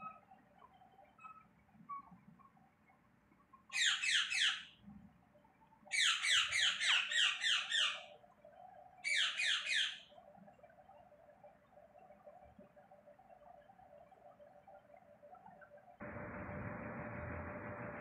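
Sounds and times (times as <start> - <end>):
parakeet squawking: 3.7 - 4.7, 5.9 - 8.0, 9.0 - 10.0.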